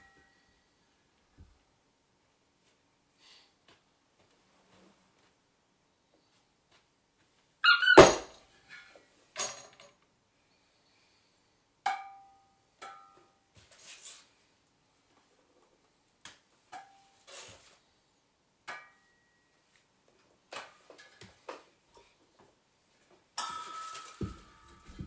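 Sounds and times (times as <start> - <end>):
loud squeak: 7.6 - 8.3.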